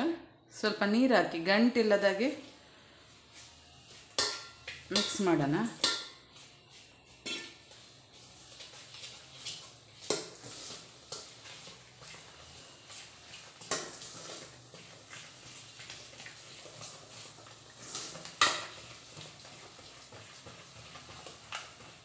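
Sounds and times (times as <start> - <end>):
spoon stirring batter: 3.3 - 22.0
spoon knocking metal bowl: 4.2 - 6.2, 7.3 - 7.6.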